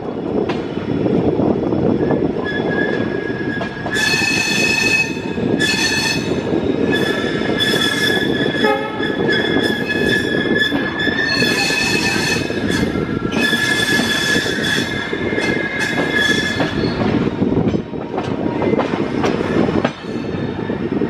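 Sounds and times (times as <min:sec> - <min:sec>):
train coaches rumbling on rails: 0:00.0 - 0:21.0
wheel flanges squealing: 0:02.1 - 0:17.3.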